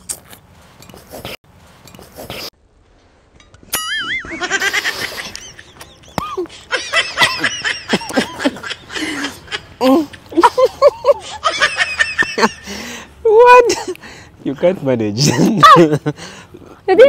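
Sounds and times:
laughter: 0:04.0 - 0:12.7.

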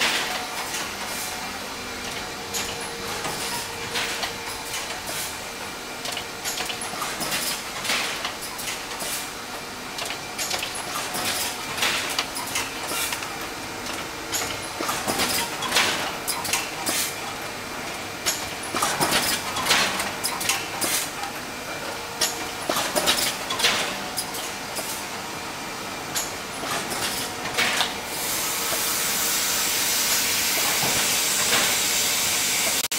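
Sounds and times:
steady machine hum: 0:00.0 - 0:31.3
machinery clicks: 0:02.0 - 0:09.2, 0:09.9 - 0:25.1.

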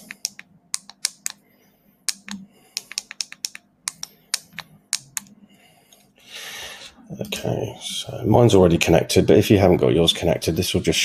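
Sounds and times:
typing on computer keyboard: 0:02.1 - 0:05.3.

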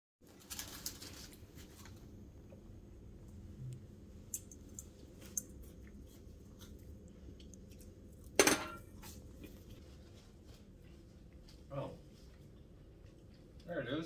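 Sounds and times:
low room hum: 0:00.2 - 0:14.0
cutlery and dishes clinking: 0:08.4 - 0:08.9.

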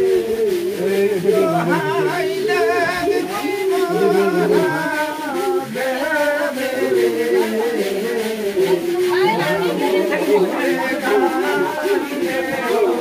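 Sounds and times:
voices chanting in song: 0:00.0 - 0:13.0.

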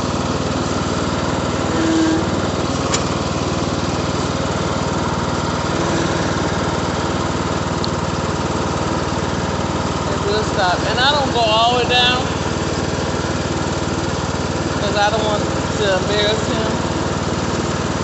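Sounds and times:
lawn mower engine running: 0:00.0 - 0:18.0.

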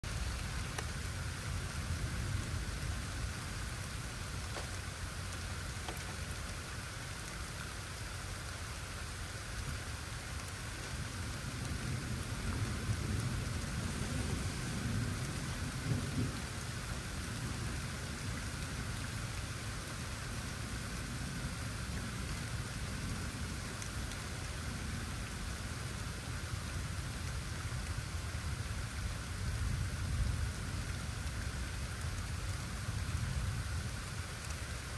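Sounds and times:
rain falling: 0:00.0 - 0:34.9
thunder rumble: 0:10.7 - 0:19.4.

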